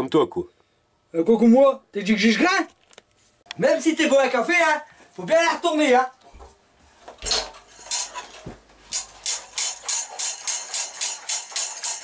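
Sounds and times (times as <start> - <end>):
metal frame rattling: 9.0 - 12.0.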